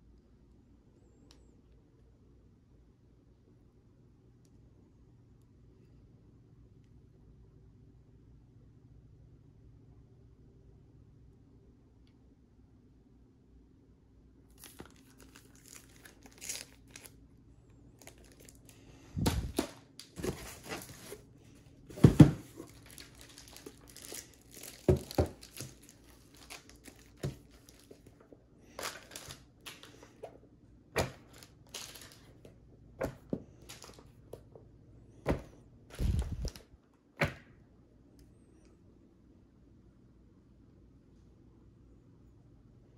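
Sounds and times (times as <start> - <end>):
plastic packaging crinkling: 14.5 - 17.2, 17.9 - 21.2, 21.9 - 28.2, 28.8 - 30.2, 31.0 - 32.4, 35.9 - 36.6
books thumping on a table: 19.2 - 21.2, 21.9 - 22.7, 24.9 - 25.7, 31.0 - 31.2, 35.3 - 36.6.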